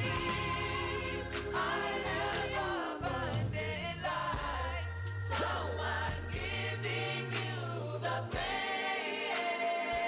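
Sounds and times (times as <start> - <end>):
bass line: 0.0 - 7.9
choir singing gospel: 0.0 - 10.0.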